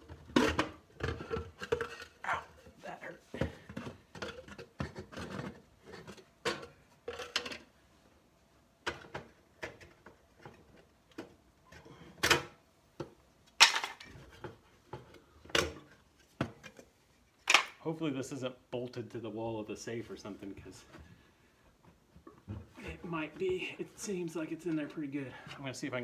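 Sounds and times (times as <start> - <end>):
wood and metal knocks and scraping: 0.0 - 2.8, 3.4 - 7.7, 8.8 - 17.6.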